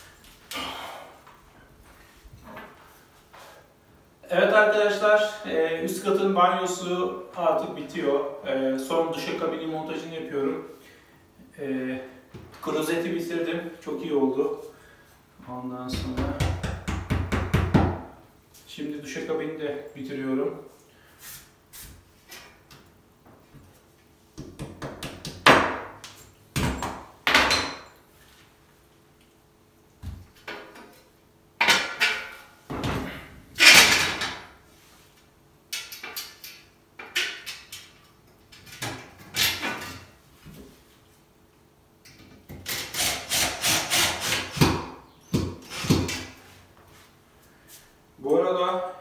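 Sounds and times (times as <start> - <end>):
hammer knocking: 15.9 - 18.0.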